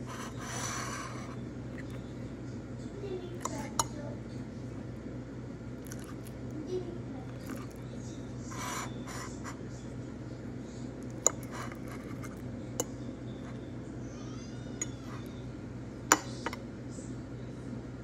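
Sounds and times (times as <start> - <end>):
steady low hum: 0.0 - 18.0
fork clinking on ceramic plate: 5.8 - 6.2, 11.1 - 13.6.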